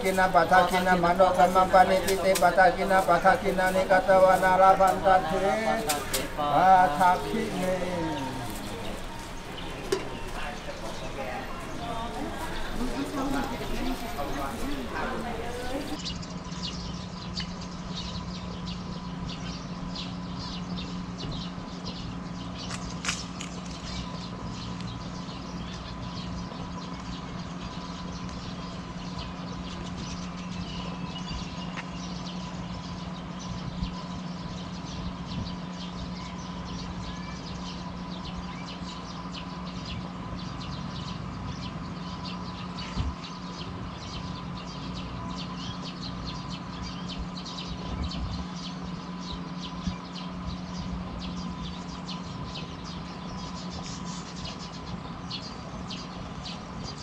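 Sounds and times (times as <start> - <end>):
steady hum: 0.0 - 16.0
small birds chirping: 0.0 - 57.0.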